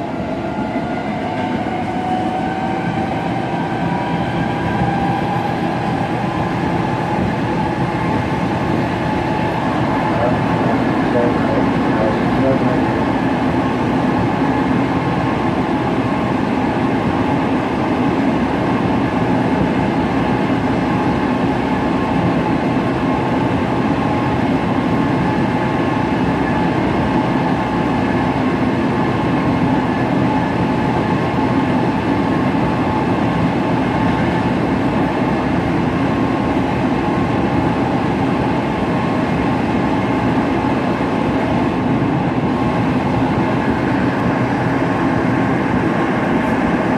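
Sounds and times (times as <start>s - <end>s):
train wheels rumbling on rail: 0.0s - 46.9s.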